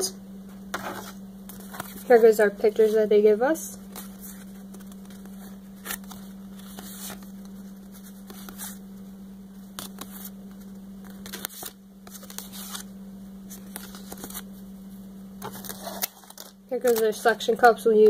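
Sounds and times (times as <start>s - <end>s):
low electrical hum: 0.0s - 18.0s
cardboard cards shuffled: 0.7s - 3.1s, 3.9s - 8.8s, 9.6s - 12.9s, 13.5s - 14.5s, 15.4s - 17.2s.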